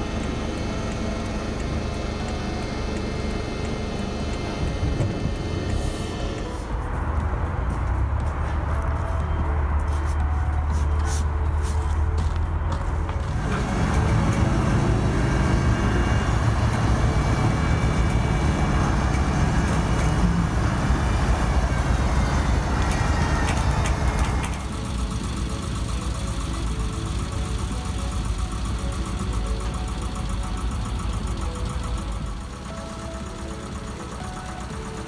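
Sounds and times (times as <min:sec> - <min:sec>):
drilling rig engine running: 0:00.0 - 0:35.0.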